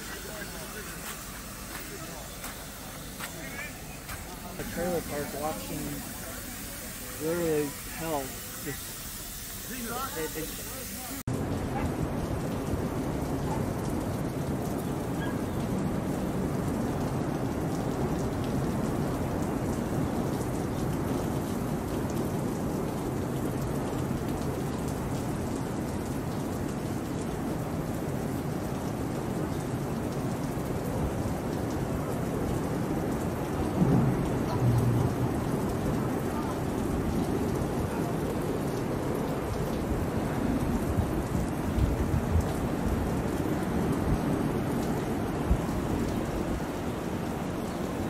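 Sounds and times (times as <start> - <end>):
heavy rain: 0.0 - 48.0
wind: 0.0 - 48.0
thunder rumbling: 31.0 - 48.0.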